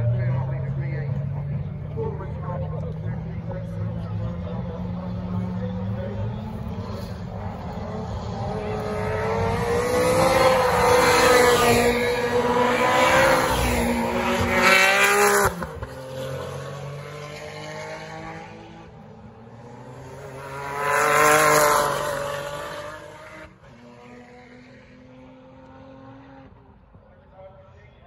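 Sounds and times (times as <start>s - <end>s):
racing cars passing at full throttle: 0.0s - 27.7s.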